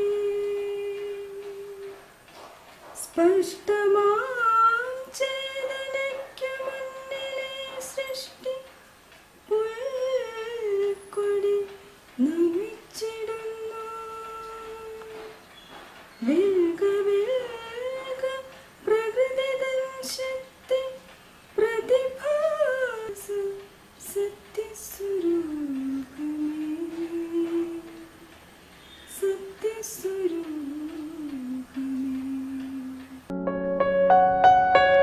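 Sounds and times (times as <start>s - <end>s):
elderly man singing: 0.0s - 2.2s, 3.0s - 8.8s, 9.5s - 15.5s, 16.2s - 28.4s, 29.1s - 33.3s.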